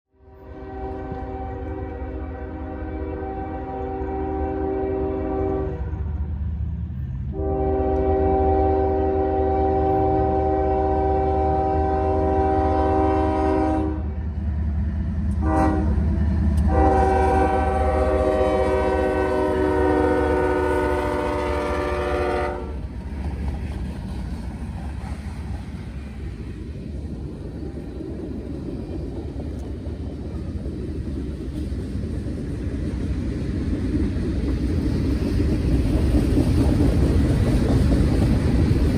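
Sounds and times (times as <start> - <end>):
train rumbling: 0.1 - 38.9
locomotive air horn: 0.2 - 6.3, 7.3 - 14.2, 15.4 - 16.0, 16.6 - 22.8.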